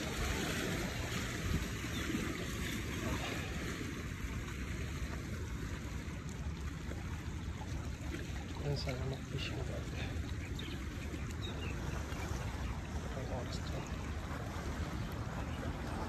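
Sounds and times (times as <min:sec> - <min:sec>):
wind rumbling on microphone: 0:00.0 - 0:08.8
sea water lapping against rocks: 0:00.0 - 0:16.0.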